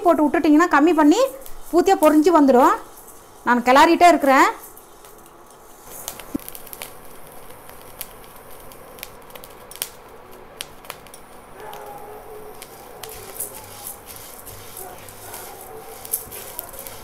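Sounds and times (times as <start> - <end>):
kernels popping in dry pan: 5.9 - 17.0.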